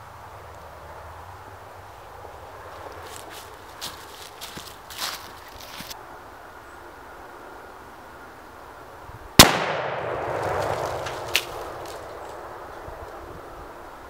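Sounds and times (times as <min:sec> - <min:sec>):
rifle shot with echo: 0:09.4 - 0:11.8.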